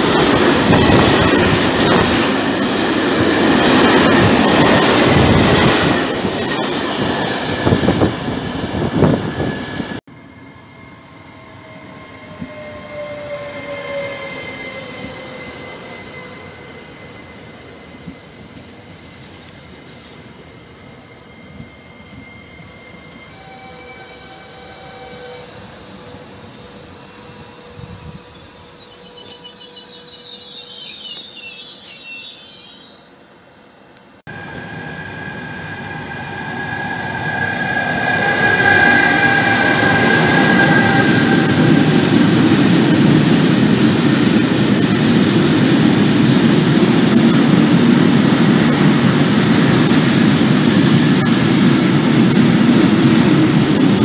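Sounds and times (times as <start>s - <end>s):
train wheel squeal: 0.0s - 33.5s, 34.3s - 43.8s
electric locomotive whine: 0.0s - 54.0s.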